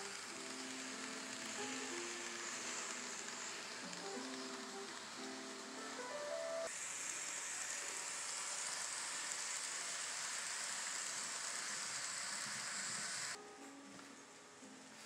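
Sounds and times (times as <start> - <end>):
music notes: 0.0 - 6.7
model train rolling on track: 0.0 - 13.4.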